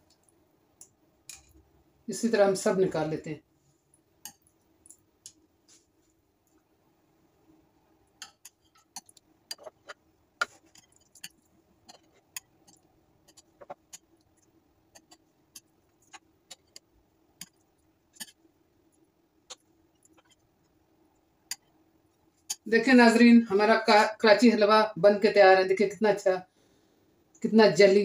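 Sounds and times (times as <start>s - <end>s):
faint steady hum: 0.0s - 28.0s
knife scraping glass dish: 9.5s - 11.3s.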